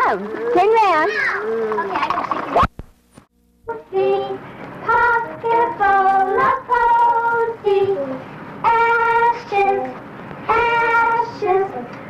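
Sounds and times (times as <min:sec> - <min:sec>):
children and adults singing: 0:03.7 - 0:12.0.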